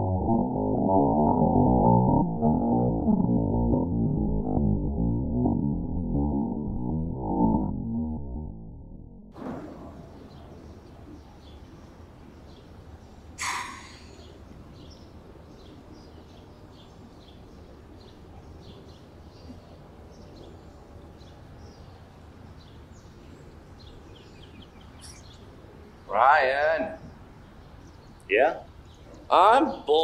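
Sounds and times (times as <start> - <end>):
small birds chirping: 10.0 - 30.0
brief swish: 13.4 - 14.1.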